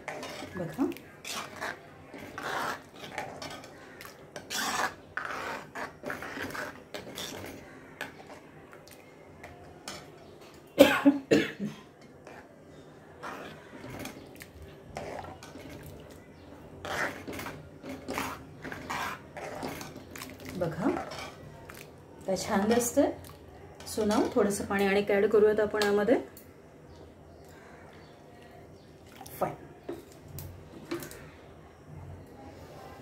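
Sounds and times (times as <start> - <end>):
metal ladle scraping a pan: 0.0 - 8.4, 13.2 - 14.3, 14.9 - 21.5.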